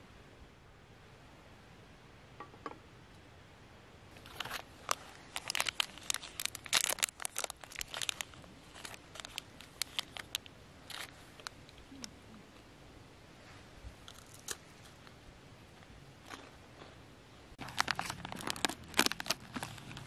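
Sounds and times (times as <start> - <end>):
plastic wrapper crinkling: 4.2 - 11.6, 17.6 - 20.0.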